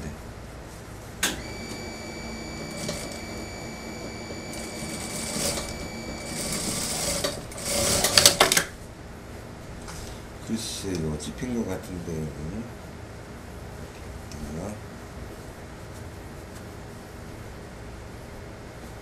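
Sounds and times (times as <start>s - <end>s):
sewing machine stitching: 1.4s - 8.6s.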